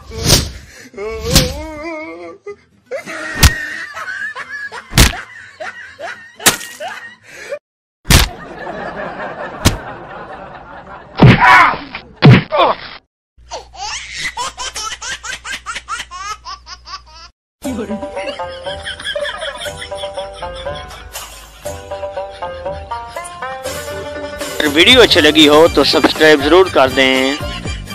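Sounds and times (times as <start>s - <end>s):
slap and punch hits: 1.3s - 1.7s, 3.4s - 3.6s, 4.9s - 5.2s, 8.1s - 8.4s, 9.6s - 9.8s, 11.2s - 12.6s
people laughing: 2.9s - 7.2s, 8.3s - 11.2s, 17.8s - 23.4s.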